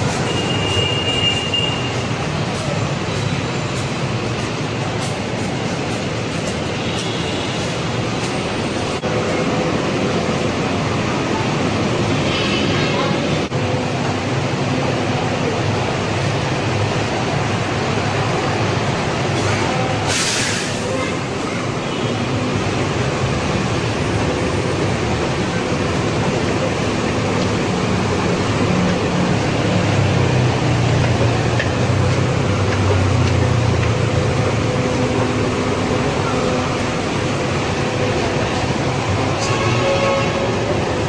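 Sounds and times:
traffic rumble: 0.0 - 41.0
short hiss: 20.0 - 20.9.

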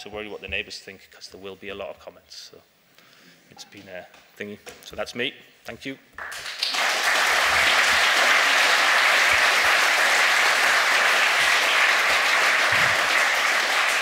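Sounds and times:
audience applauding: 6.2 - 14.0.

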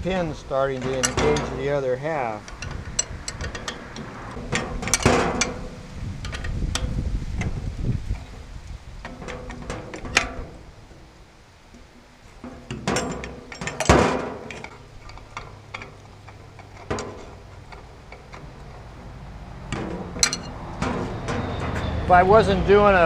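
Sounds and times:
socket ratchet clicking: 2.4 - 4.1.

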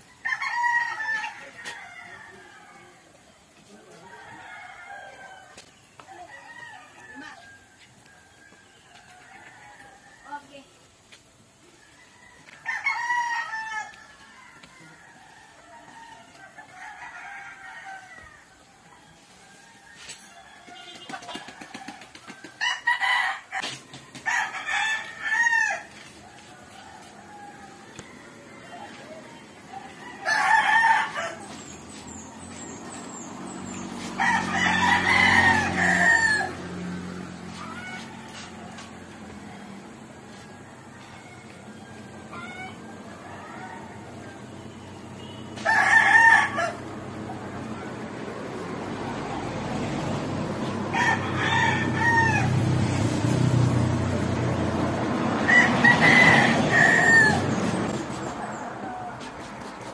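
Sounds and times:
rooster crowing: 0.0 - 3.1, 3.9 - 10.6, 11.8 - 59.2.

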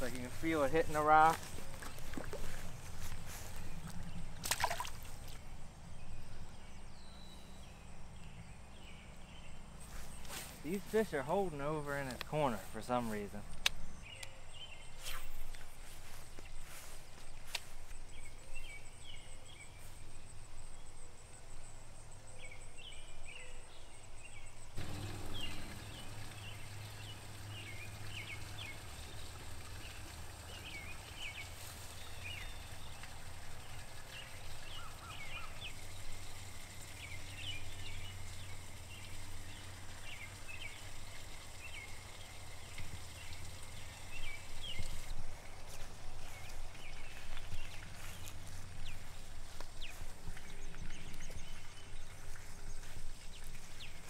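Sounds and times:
steady low hum: 24.8 - 54.0.

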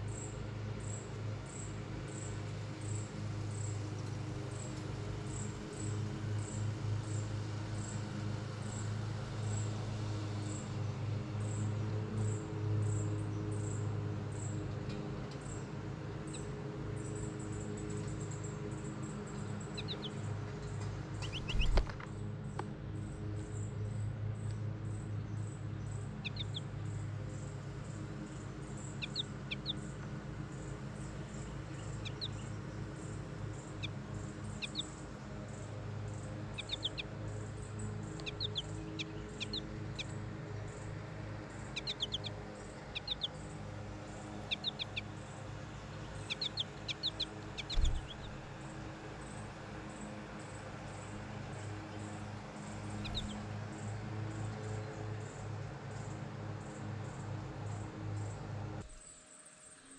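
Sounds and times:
songbirds chirping: 0.0 - 59.9
steady low hum: 15.5 - 59.9.

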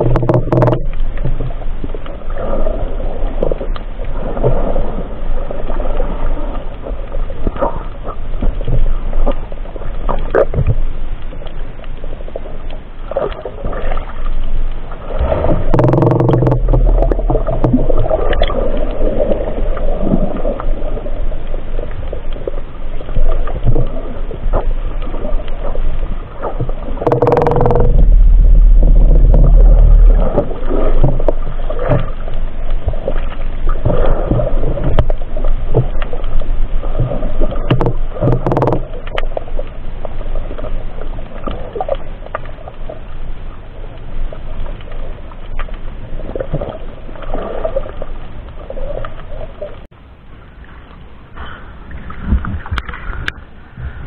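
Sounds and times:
underwater water rushing and gurgling: 0.0 - 54.0
heavy low rumbling surges: 27.7 - 30.8.

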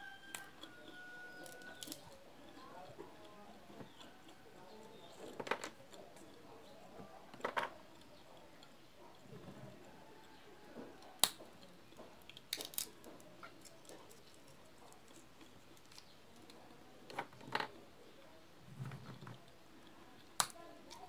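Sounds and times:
peanut shells cracking by hand: 0.0 - 6.4, 10.2 - 17.8, 19.4 - 21.0.

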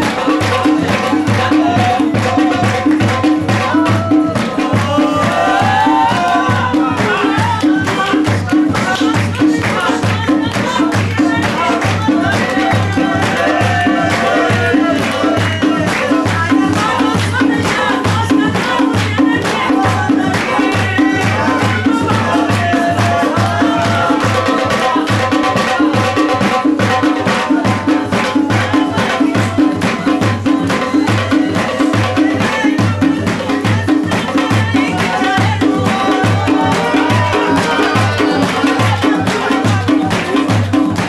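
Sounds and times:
quick drum beat: 0.0 - 41.0
hands clapping along: 2.2 - 3.5, 4.4 - 21.5, 35.0 - 41.0.

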